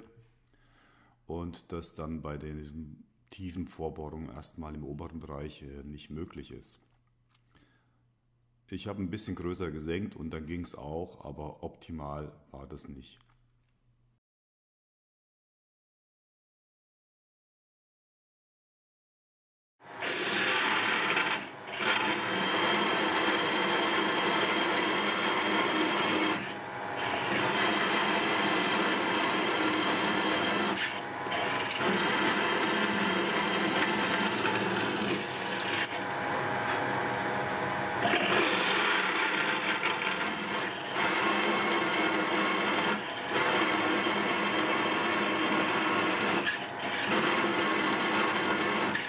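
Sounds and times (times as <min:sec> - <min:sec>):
drill boring through steel: 0:20.0 - 0:36.1, 0:37.9 - 0:49.0.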